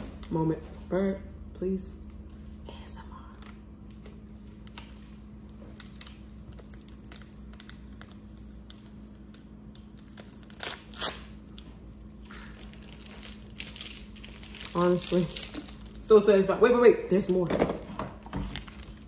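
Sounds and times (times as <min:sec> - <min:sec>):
faint steady hum: 0:00.0 - 0:19.0
plastic bag crinkling and tearing: 0:03.4 - 0:16.1, 0:17.2 - 0:19.0.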